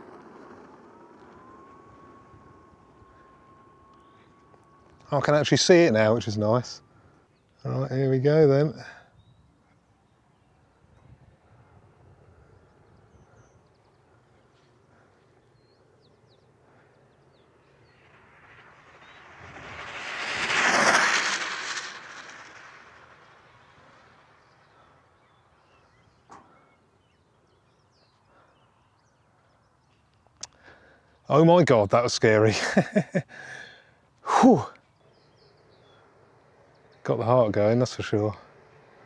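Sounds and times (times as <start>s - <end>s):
rc car whooshing past: 0.0s - 7.1s, 15.6s - 26.8s, 35.0s - 39.0s.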